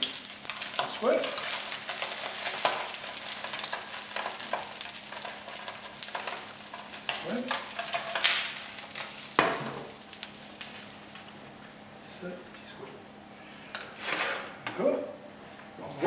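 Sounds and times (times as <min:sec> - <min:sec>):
fish sizzling in a frying pan: 0:00.0 - 0:11.6
spatula clacking and scraping: 0:00.8 - 0:08.4.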